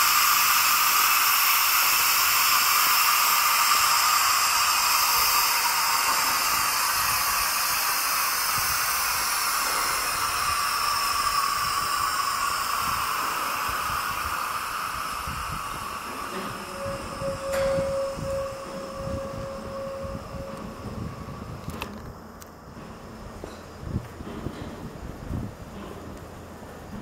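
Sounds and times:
air brakes hissing: 0:00.0 - 0:21.6.

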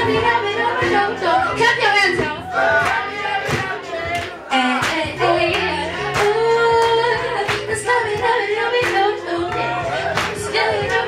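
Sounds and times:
woman singing into a microphone: 0:00.0 - 0:02.5, 0:04.5 - 0:11.0
backing beat with drums and bass: 0:00.0 - 0:11.0.

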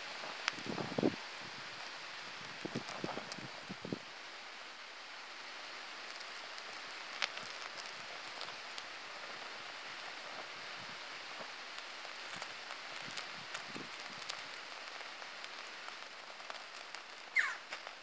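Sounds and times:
flames hissing and crackling: 0:00.0 - 0:18.0
fire pop: 0:11.4 - 0:18.0.

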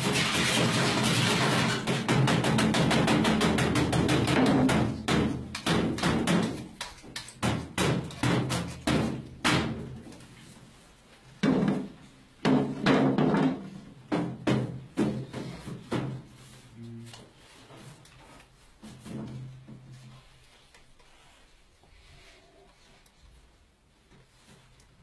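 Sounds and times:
frame drum beaten by hand: 0:00.0 - 0:06.8.

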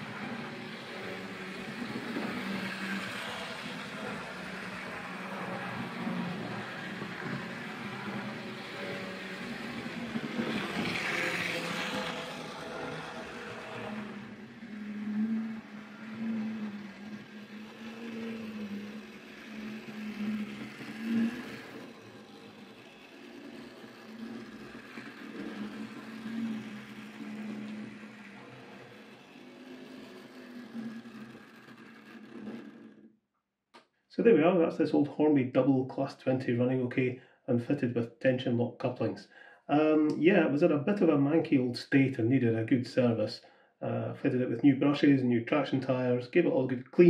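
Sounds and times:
model train motor humming: 0:00.0 - 0:33.1
wheel and rail noise: 0:00.0 - 0:33.1.

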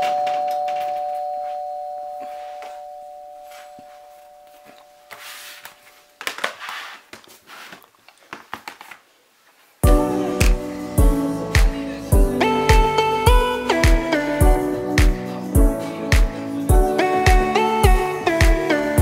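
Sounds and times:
two-note ding-dong chime: 0:00.0 - 0:05.0.

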